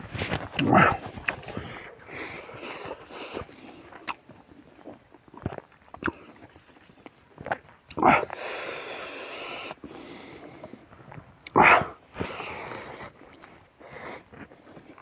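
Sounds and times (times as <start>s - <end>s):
person eating by hand: 0.2s - 15.0s
mouth smacks: 0.4s - 4.3s, 5.4s - 9.8s.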